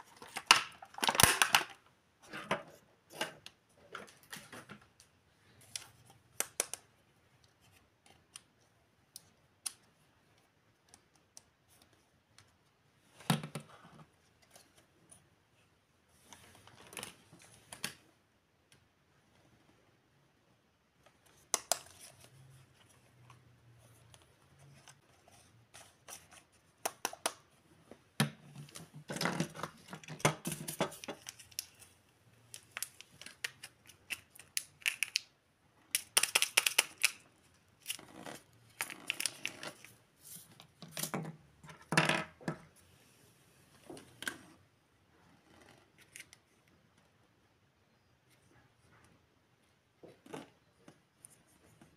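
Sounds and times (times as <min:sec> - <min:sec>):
plastic toy figures clicking: 0:36.0 - 0:37.2.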